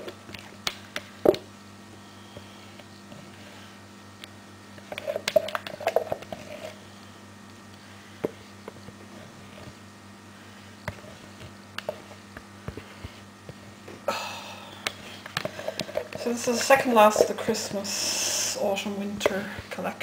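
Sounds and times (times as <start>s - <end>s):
faint steady hum: 0.0s - 20.0s
soap batter clicking and squishing: 4.2s - 6.4s.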